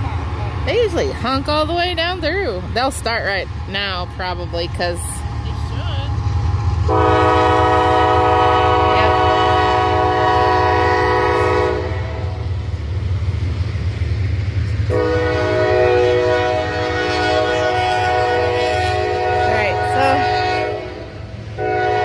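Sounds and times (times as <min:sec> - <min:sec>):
train rumbling: 0:00.0 - 0:22.0
train horn blast: 0:06.8 - 0:12.5, 0:14.9 - 0:22.0.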